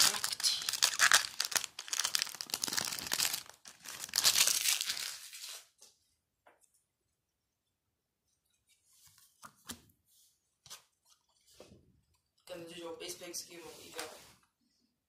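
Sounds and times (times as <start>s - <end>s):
foil wrapper tearing and crinkling: 0.0s - 5.5s.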